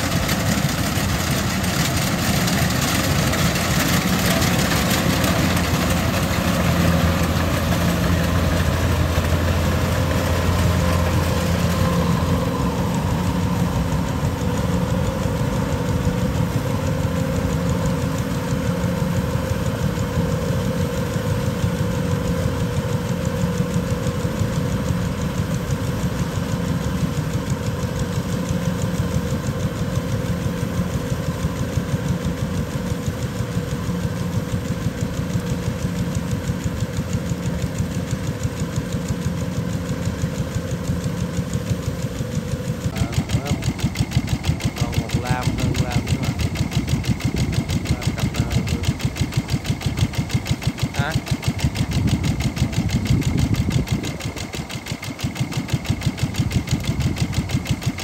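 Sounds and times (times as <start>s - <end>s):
combine harvester engine drone: 0.0s - 58.0s
steady mid-pitched tone: 38.7s - 58.0s.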